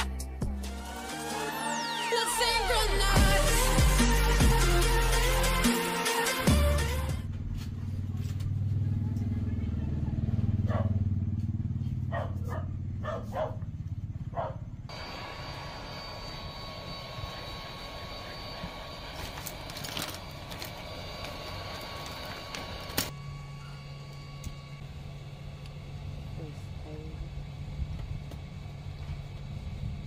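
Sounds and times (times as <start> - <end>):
low steady hum: 12.1 - 30.0
hot air gun blowing: 14.9 - 23.2.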